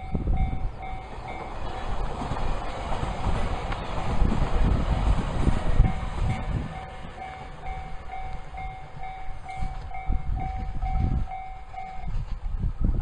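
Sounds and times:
level-crossing warning bell: 0.0s - 1.8s, 4.9s - 12.2s
electric train rumbling: 0.0s - 13.0s.

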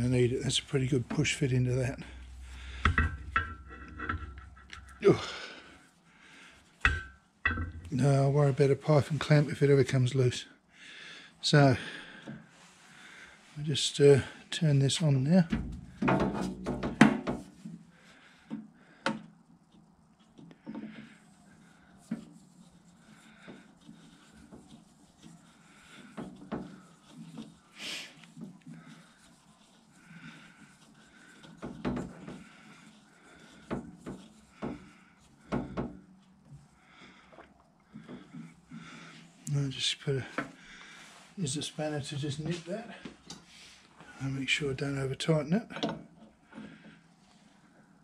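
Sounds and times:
hose fitting rubbing and scraping: 0.0s - 10.3s, 12.2s - 47.6s
clattering: 1.8s - 5.0s.

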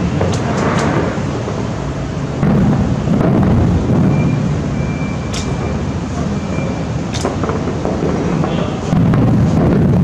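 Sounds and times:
distant fireworks booming: 0.0s - 10.0s
sharp firework cracks: 2.4s - 4.1s, 7.0s - 10.0s.

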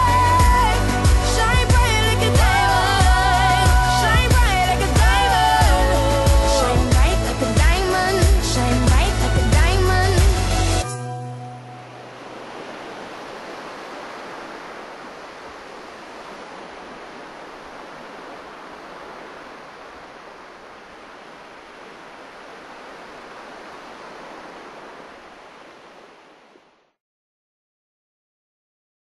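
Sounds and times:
steady rushing noise: 11.6s - 26.8s.

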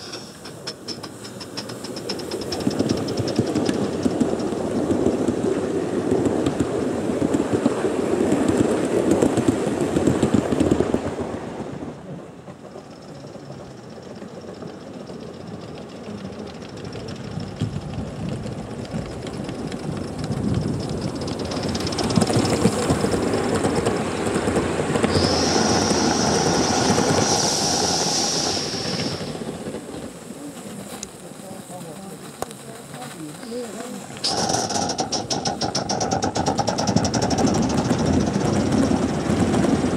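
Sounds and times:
model train wheels clattering: 0.0s - 11.2s, 12.4s - 39.9s
steady high-pitched tone: 25.0s - 29.4s.

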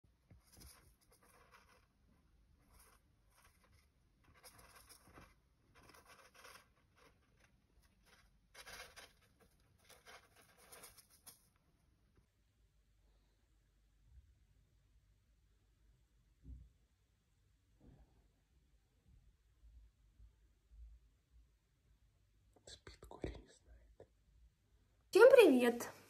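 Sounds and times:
rodent scratching in bedding: 0.3s - 11.6s.

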